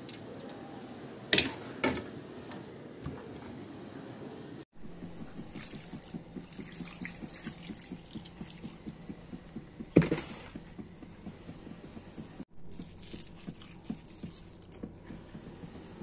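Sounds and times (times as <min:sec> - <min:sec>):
water pouring and splashing: 0:05.4 - 0:09.1, 0:12.7 - 0:15.2.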